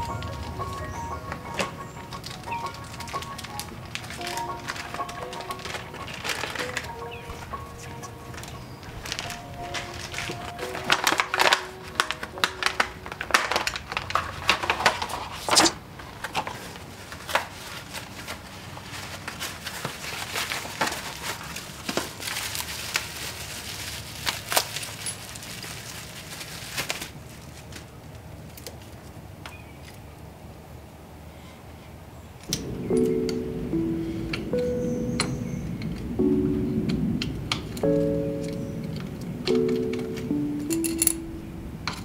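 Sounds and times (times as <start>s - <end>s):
background music: 0.0s - 13.8s, 32.5s - 42.0s
packing wrap crinkling: 0.0s - 29.1s.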